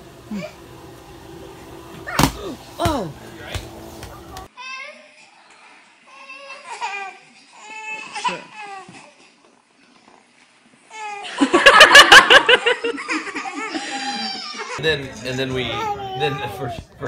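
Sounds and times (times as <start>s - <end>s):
hearty laughter: 11.2s - 14.4s.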